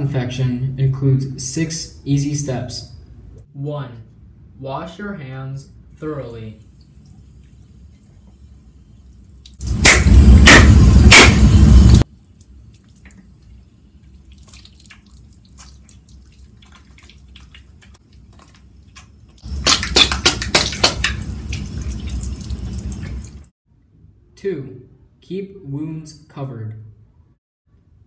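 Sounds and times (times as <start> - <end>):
water dripping: 6.6 - 9.8, 12.0 - 23.5.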